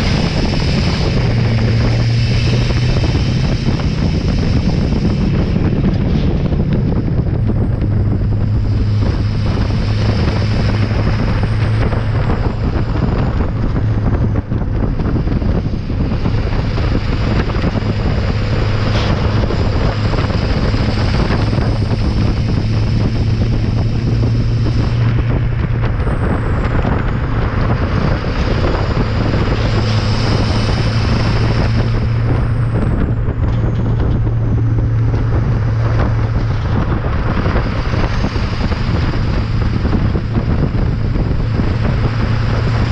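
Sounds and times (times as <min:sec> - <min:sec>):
diesel exhaust drone: 0:00.0 - 0:42.9
road and tyre noise: 0:00.0 - 0:42.9
wind on microphone: 0:00.0 - 0:42.9.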